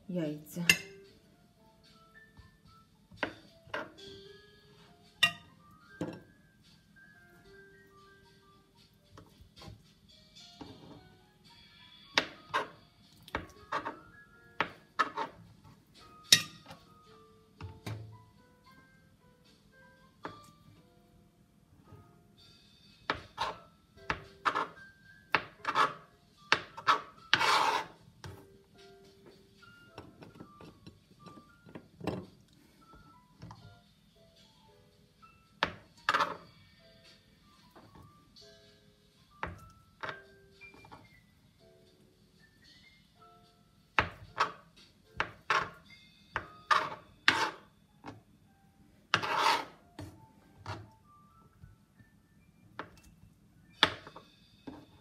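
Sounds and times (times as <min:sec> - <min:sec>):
knife scraping cutting board: 0:15.0 - 0:15.4, 0:24.4 - 0:24.8, 0:25.6 - 0:26.0, 0:26.7 - 0:28.0, 0:36.1 - 0:36.4, 0:45.4 - 0:45.8, 0:46.6 - 0:47.7, 0:49.1 - 0:50.1
knife chopping on cutting board: 0:23.1 - 0:28.4, 0:49.1 - 0:50.1.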